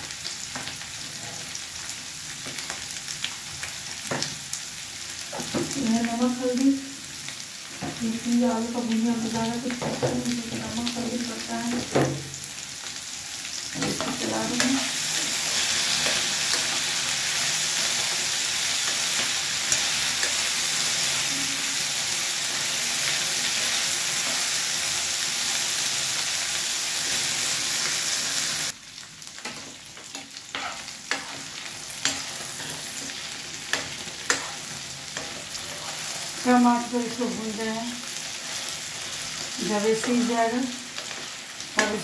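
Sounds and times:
potatoes sizzling in oil: 0:00.0 - 0:42.0
spatula scraping a pan: 0:29.4 - 0:36.4.

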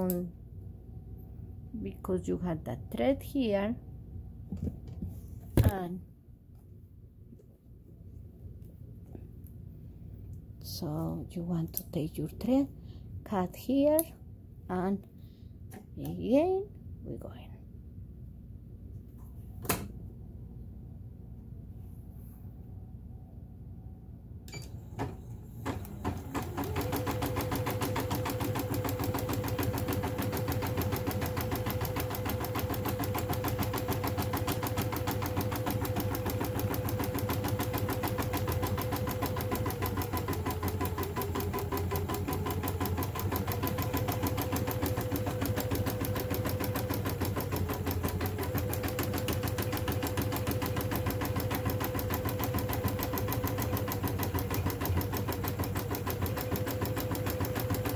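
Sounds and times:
embroidery machine stitching: 0:25.0 - 0:57.9.

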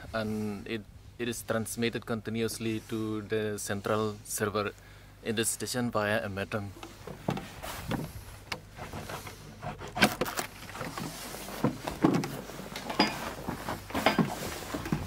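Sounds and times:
footsteps stepping in: 0:10.5 - 0:15.0.

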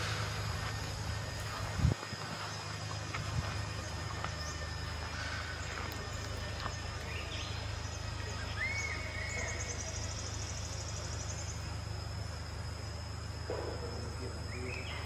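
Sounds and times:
high insect drone: 0:00.0 - 0:15.0
rapid high insect trill: 0:00.0 - 0:15.0
short insect chirp: 0:00.0 - 0:15.0
steady low hum: 0:00.0 - 0:15.0.

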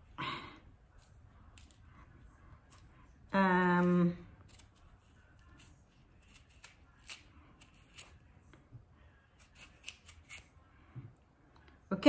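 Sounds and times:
knife scraping melon: 0:01.0 - 0:01.9, 0:02.5 - 0:08.3, 0:09.3 - 0:10.6.

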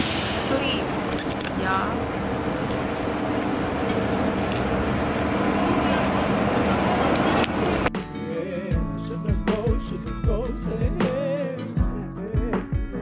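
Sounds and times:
city traffic noise: 0:00.0 - 0:08.4
background music: 0:07.9 - 0:13.0.

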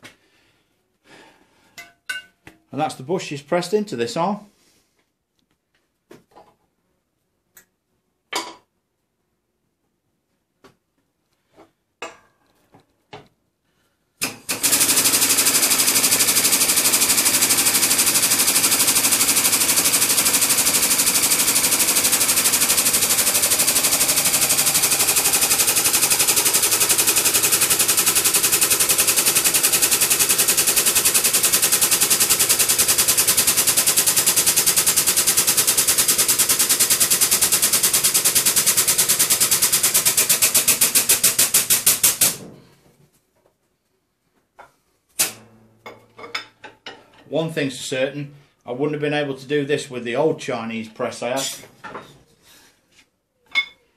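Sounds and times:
air pump rattling: 0:14.2 - 0:42.4.

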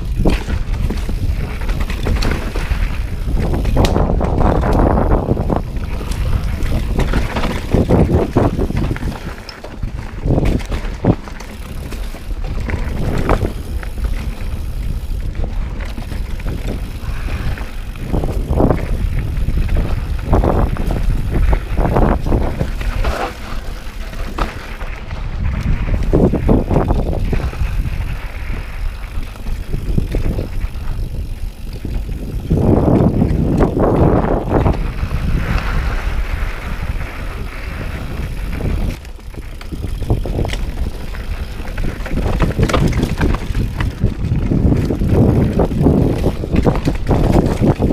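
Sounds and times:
bike knocks and rattles: 0:00.0 - 0:47.9
bike tyres rumbling over dirt: 0:00.0 - 0:47.9
wind buffeting microphone: 0:00.0 - 0:47.9.

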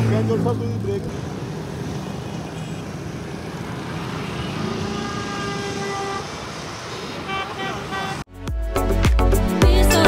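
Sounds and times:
street traffic: 0:00.0 - 0:10.0
vehicle horn long note: 0:04.5 - 0:06.4, 0:07.1 - 0:08.3.

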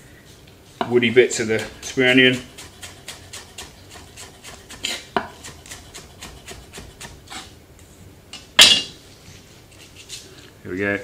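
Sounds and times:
knife chopping on wooden board: 0:01.4 - 0:07.5.

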